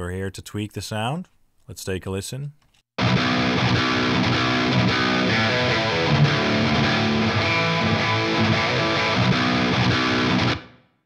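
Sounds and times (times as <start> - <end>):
distorted electric guitar: 3.0 - 10.9.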